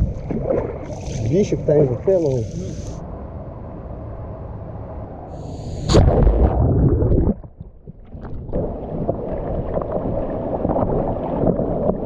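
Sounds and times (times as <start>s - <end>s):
river water sloshing and gurgling: 0.0s - 3.0s, 6.1s - 12.0s
small water splashes: 0.0s - 3.0s.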